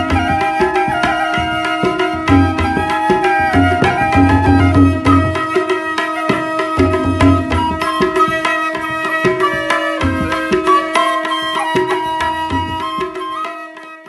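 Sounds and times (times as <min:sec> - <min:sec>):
steady drum rhythm: 0:00.0 - 0:10.9.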